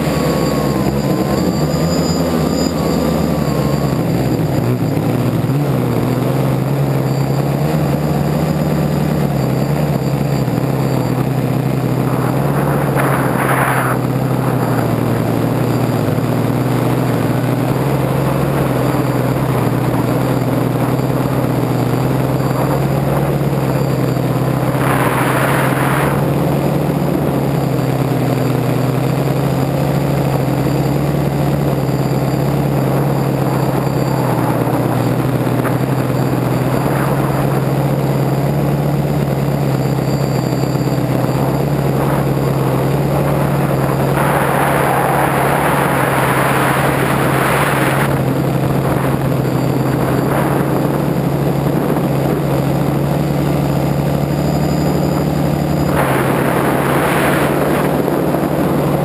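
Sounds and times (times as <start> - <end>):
drone propellers whirring: 0.0 - 59.0
short rushes of noise: 11.8 - 16.0, 41.0 - 51.8, 55.7 - 59.0.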